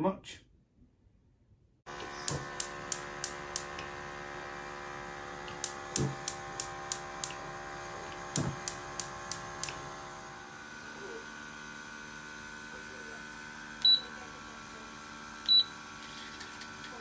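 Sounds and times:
steady hum: 1.9 - 11.8
gas hob ignition clicking: 2.1 - 3.9, 5.5 - 7.4, 8.1 - 9.8.

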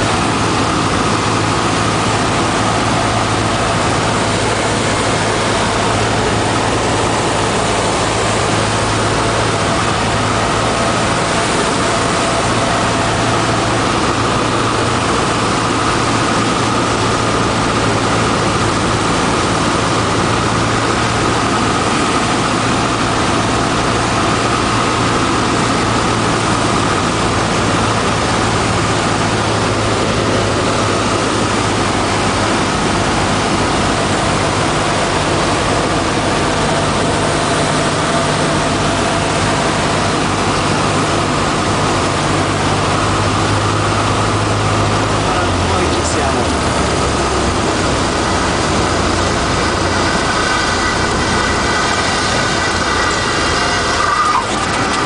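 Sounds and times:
air noise: 0.0 - 55.0
light aircraft engine droning: 0.0 - 55.0.

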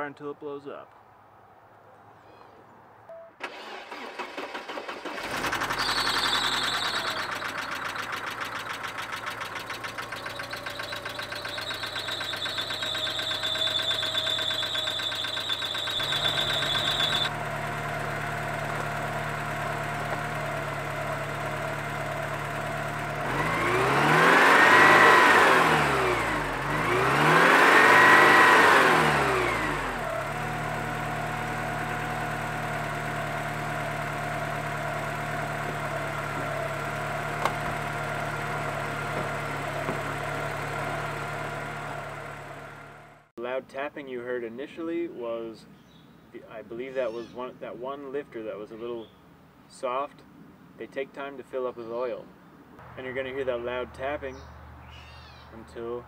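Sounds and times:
engine revving: 3.4 - 43.3
car engine idling: 3.5 - 43.3
engine valve tapping: 35.2 - 38.3, 39.0 - 40.4.

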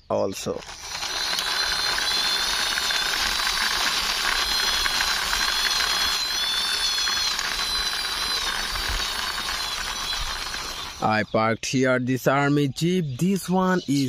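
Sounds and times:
toy jeep whirring and whining: 0.4 - 11.3
toy wheels clicking on grit: 0.4 - 11.3.

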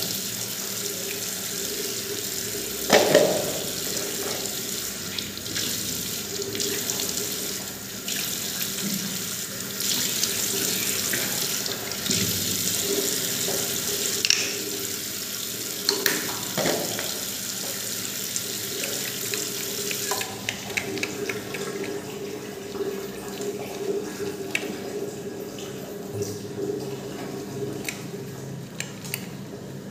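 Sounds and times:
tap water running into sink: 0.0 - 29.4
water drips: 18.4 - 29.3.

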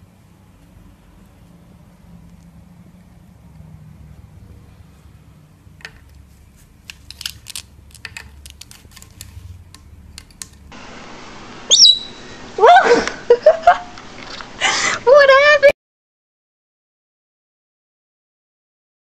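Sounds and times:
parrot squawking and whistling: 10.8 - 12.9.

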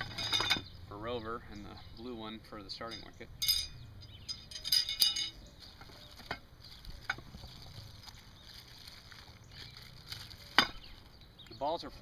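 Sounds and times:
rustling of fabric bag: 5.6 - 11.0.

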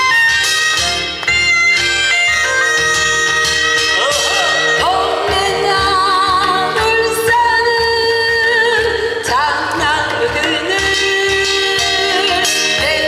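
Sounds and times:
backing track with steady beat: 0.0 - 13.0
woman singing with vibrato: 4.2 - 13.0.

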